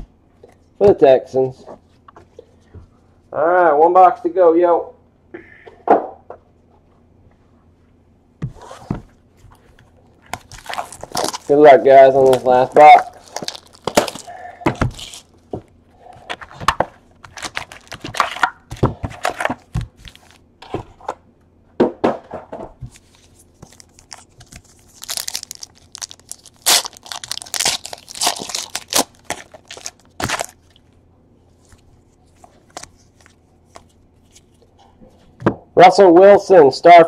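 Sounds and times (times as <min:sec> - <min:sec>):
wrapper and cardboard tearing: 0:10.3 - 0:15.3, 0:17.2 - 0:20.4, 0:23.6 - 0:30.6.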